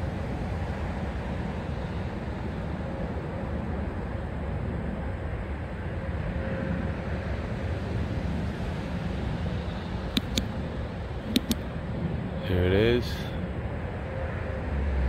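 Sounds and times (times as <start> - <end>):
low outdoor rumble: 0.0 - 15.0
sharp clicks: 10.1 - 10.5, 11.2 - 11.6.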